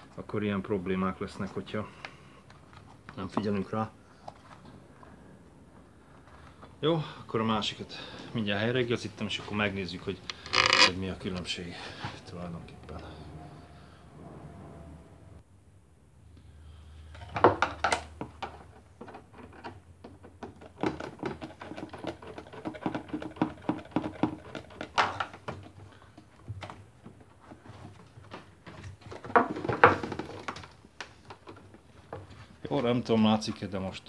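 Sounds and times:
plastic and rubber clicks and rubbing: 0:10.2 - 0:11.0.

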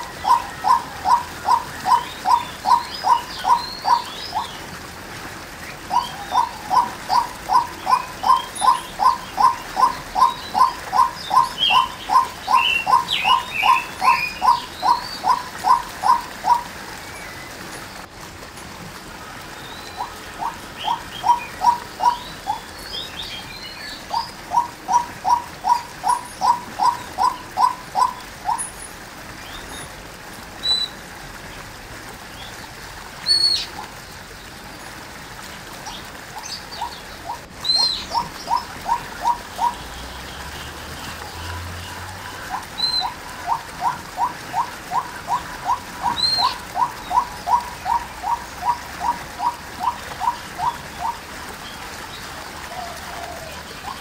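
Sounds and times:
waterhen calling repeated notes: 0:00.0 - 0:54.0
high bird chirps: 0:05.9 - 0:17.4, 0:43.8 - 0:48.8.

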